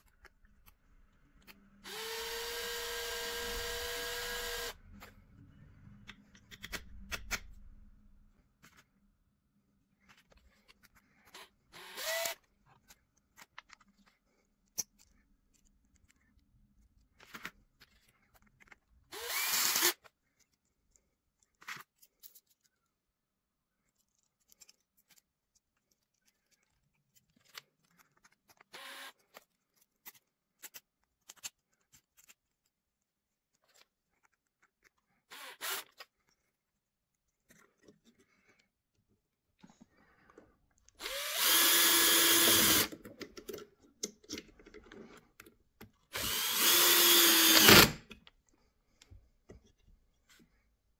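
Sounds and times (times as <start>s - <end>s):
power drill bursts: 11.8s - 12.4s, 19.1s - 20.0s, 41.0s - 42.9s, 46.2s - 48.0s.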